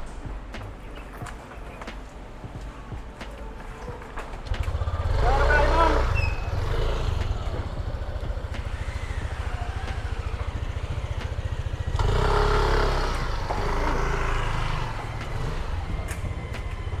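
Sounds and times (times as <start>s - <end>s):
vehicle engine rumbling: 0.0s - 17.0s
louder engine with held pitch: 4.7s - 17.0s.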